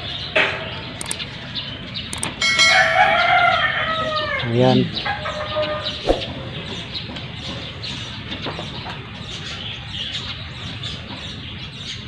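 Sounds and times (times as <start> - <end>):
small birds chirping: 0.0 - 2.4, 3.1 - 12.0
chickens clucking: 0.0 - 9.9
sharp click: 1.0 - 1.3, 2.1 - 2.4
rooster crowing: 2.4 - 6.0.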